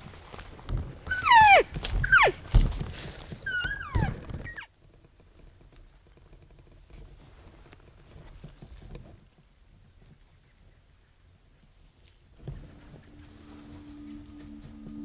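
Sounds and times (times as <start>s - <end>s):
faint outdoor background: 0.0s - 15.0s
elk mews squealing: 1.1s - 2.4s, 3.5s - 4.7s.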